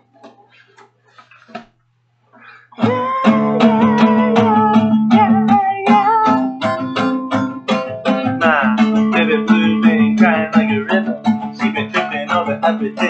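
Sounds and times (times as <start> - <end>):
guitar strumming: 2.8 - 13.0.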